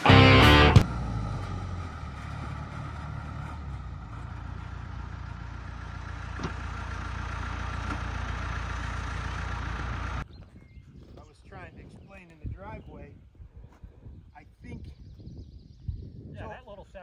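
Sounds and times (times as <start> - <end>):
bulldozer diesel engine running: 0.0 - 10.3.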